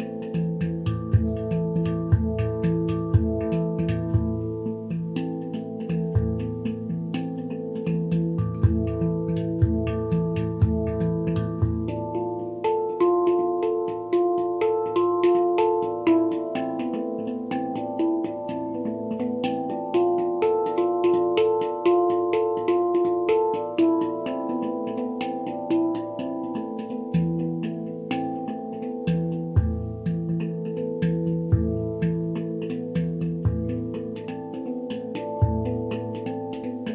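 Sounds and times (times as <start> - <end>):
handpan melody: 0.0 - 36.9.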